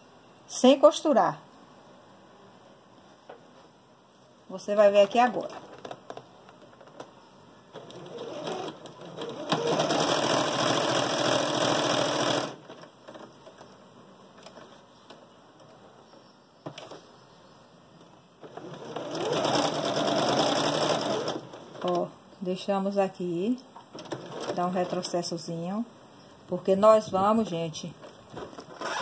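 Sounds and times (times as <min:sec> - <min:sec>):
electric sewing machine stitching: 0:07.8 - 0:12.6, 0:18.4 - 0:21.6, 0:28.8 - 0:29.0.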